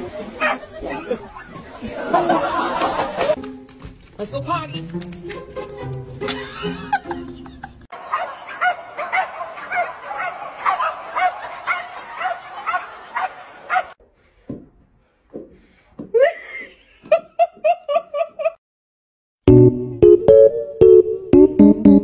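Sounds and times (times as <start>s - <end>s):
laughter: 0.0s - 3.4s, 6.3s - 8.8s, 10.5s - 13.9s, 16.2s - 18.6s
dogs barking: 0.4s - 1.2s, 8.0s - 14.0s.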